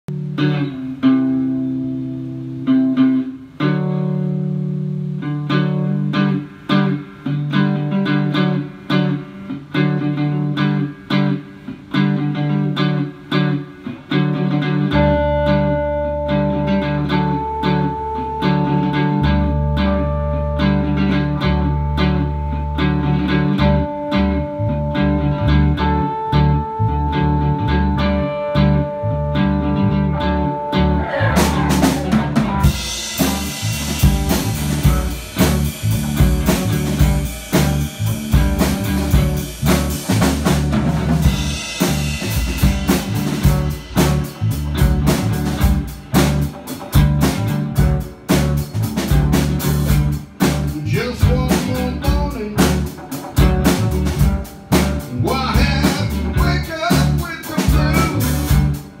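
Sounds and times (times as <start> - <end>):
electric guitar: 0.0 - 59.0
rock band playing: 0.1 - 59.0
drum kit with cymbals: 31.0 - 59.0.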